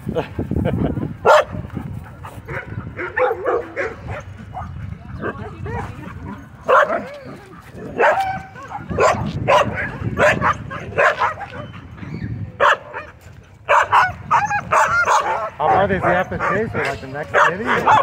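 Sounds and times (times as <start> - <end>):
dog barking: 1.2 - 1.6, 2.5 - 6.0, 6.6 - 7.2, 7.9 - 11.7, 12.6 - 18.0.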